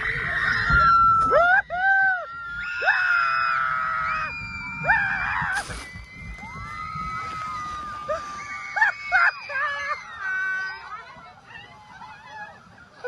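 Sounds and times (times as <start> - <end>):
people screaming: 0.0 - 13.0
brief hiss: 5.5 - 6.0.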